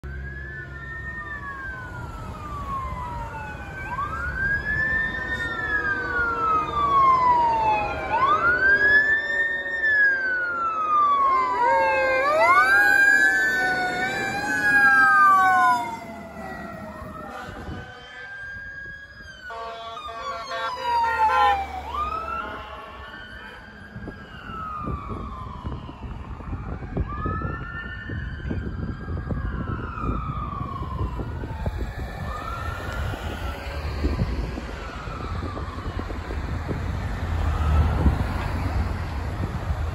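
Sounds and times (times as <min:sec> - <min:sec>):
low winding siren tone: 0:00.0 - 0:36.7
wailing sirens: 0:00.0 - 0:39.9
truck horn blasts: 0:17.2 - 0:18.4, 0:19.5 - 0:21.5, 0:22.3 - 0:23.6.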